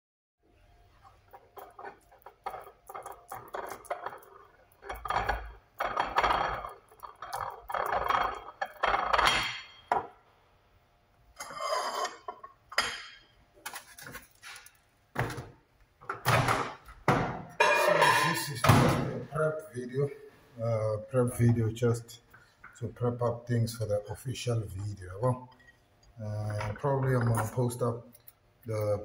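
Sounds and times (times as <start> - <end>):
dishes clinking and scraping: 1.1 - 10.2, 11.4 - 14.7, 17.5 - 19.3, 26.4 - 28.4.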